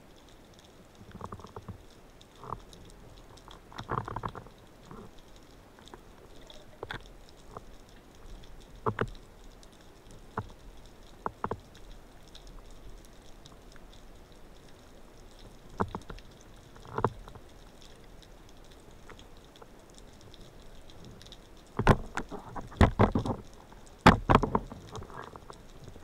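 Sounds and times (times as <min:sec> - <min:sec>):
faint crackle of tiny clicks: 0:00.0 - 0:26.0
sharp clicks and knocks: 0:21.8 - 0:25.5.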